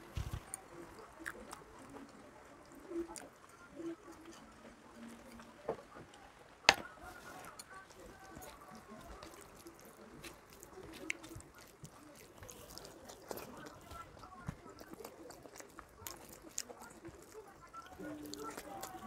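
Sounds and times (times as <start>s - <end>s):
rice mixed by hand squishing: 6.7s - 19.0s.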